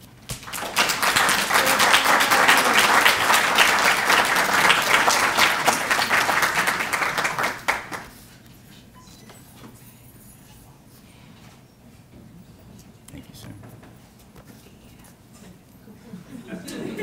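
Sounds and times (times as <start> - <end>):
audience applauding: 0.3 - 8.2.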